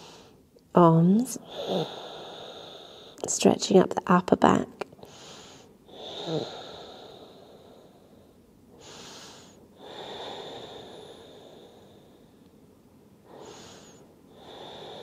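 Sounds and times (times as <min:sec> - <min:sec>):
person breathing deeply: 0:00.0 - 0:00.4, 0:01.4 - 0:03.2, 0:05.0 - 0:12.4, 0:13.2 - 0:15.0.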